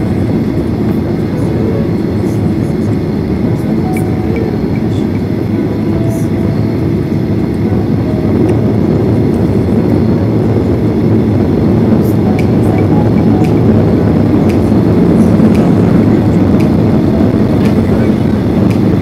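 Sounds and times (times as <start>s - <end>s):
jet engine roar in cabin: 0.0s - 19.0s.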